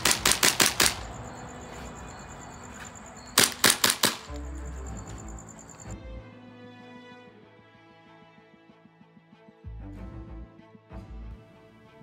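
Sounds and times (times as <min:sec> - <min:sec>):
airsoft gun firing: 0:00.0 - 0:01.2, 0:03.3 - 0:04.4
high insect trill: 0:00.0 - 0:06.0
music: 0:04.1 - 0:12.0.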